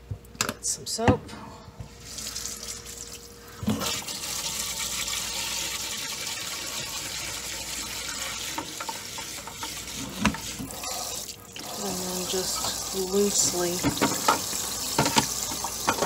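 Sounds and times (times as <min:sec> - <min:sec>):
tap water running into bowl: 0:02.1 - 0:16.0.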